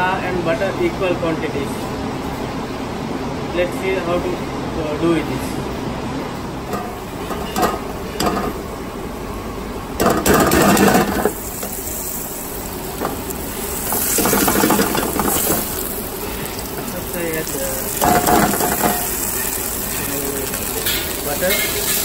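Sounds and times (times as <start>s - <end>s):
steady hiss: 6.7s - 22.0s
butter sizzling: 10.0s - 22.0s.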